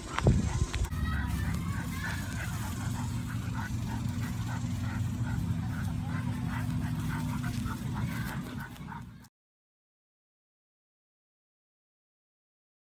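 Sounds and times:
puppies whimpering and yipping: 0.0s - 9.3s.

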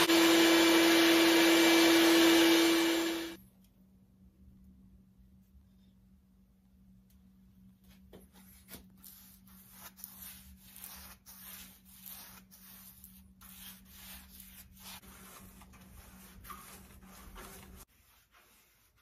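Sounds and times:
paintbrush scratching on steel: 8.4s - 19.0s.

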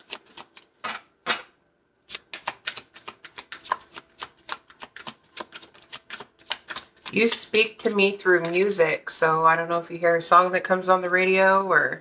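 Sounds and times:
cards being shuffled: 0.0s - 1.5s, 2.1s - 8.7s.

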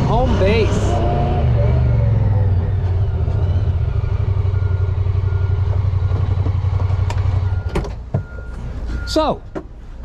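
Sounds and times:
engine running at low revs: 0.0s - 7.8s.

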